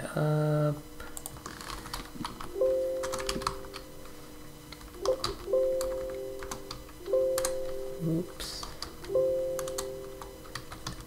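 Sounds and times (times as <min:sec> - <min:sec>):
held musical notes: 0:02.4 - 0:04.4, 0:05.0 - 0:10.8.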